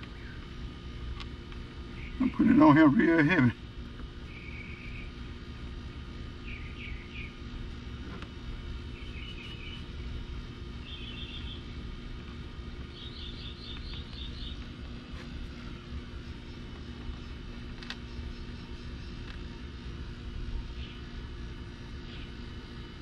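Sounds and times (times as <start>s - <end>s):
steady low hum: 0.0s - 23.0s
small bird trilling: 6.4s - 7.4s, 8.9s - 10.0s, 10.8s - 11.7s.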